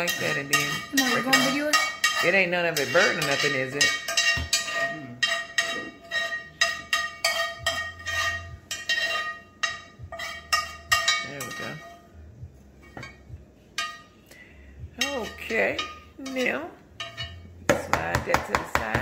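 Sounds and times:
metal spoon scraping skillet: 0:00.0 - 0:19.0.

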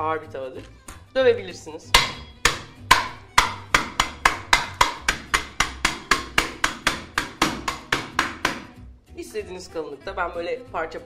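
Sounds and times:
pan pounding nuts in a bag: 0:02.0 - 0:08.8.

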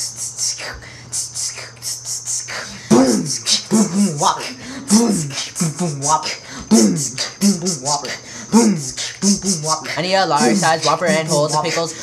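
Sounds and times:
beatboxing hissing hi-hat sounds: 0:00.0 - 0:12.0
beatboxing vocal bass notes: 0:00.0 - 0:12.0.

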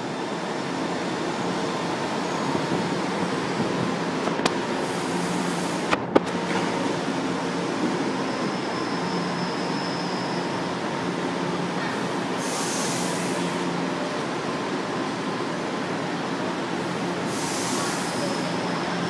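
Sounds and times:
metro train rumbling: 0:00.0 - 0:19.0
thin train whine: 0:00.0 - 0:19.0
short burst of hiss: 0:12.4 - 0:13.4, 0:17.3 - 0:18.5.

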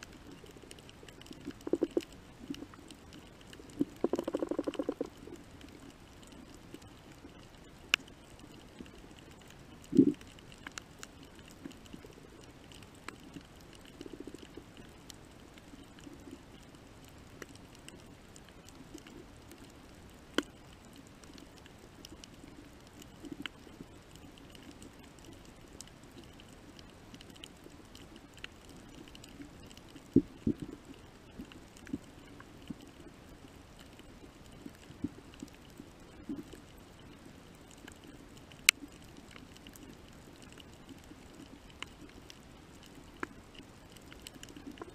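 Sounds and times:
faint underwater hum: 0:00.0 - 0:44.9
underwater clicks and pops: 0:01.2 - 0:02.8, 0:03.7 - 0:05.4, 0:09.8 - 0:10.8.

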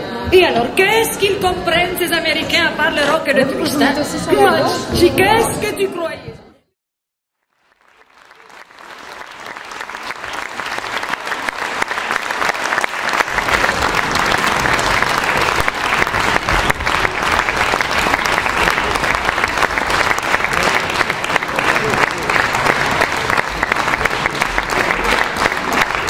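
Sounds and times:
audience applauding: 0:07.4 - 0:26.0.

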